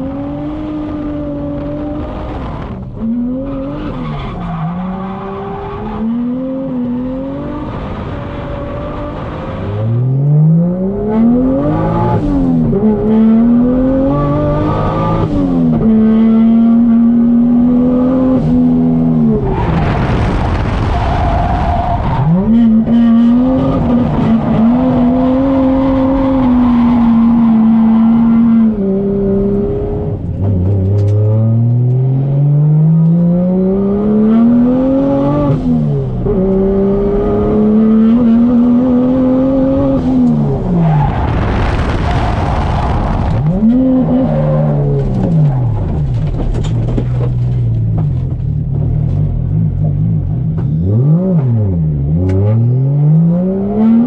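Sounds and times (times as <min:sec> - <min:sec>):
car engine revving hard: 0:04.8 - 0:30.2, 0:30.9 - 0:45.8, 0:50.2 - 0:54.0.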